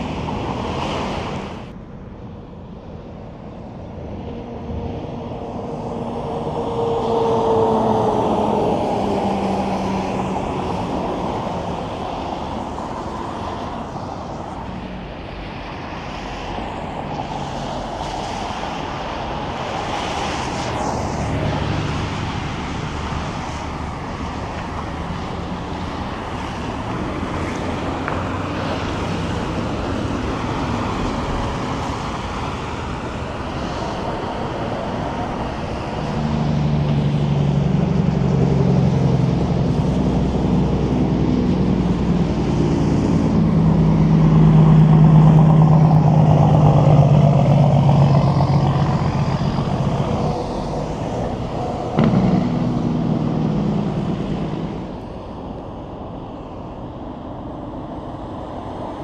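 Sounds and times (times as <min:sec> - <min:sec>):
truck engine drone: 0:00.0 - 0:59.0
tyre and road noise: 0:00.0 - 0:59.0.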